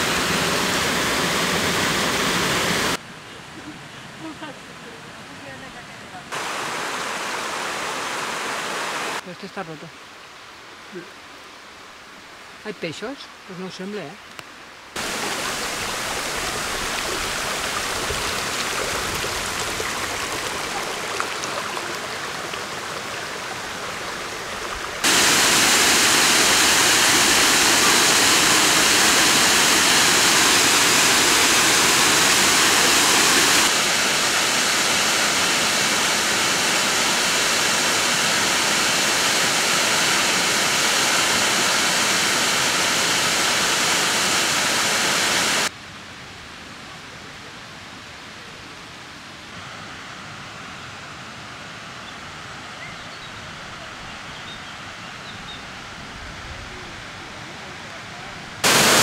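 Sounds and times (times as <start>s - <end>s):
waterfall pouring and splashing: 0.0s - 3.0s, 4.2s - 45.8s, 58.6s - 59.0s.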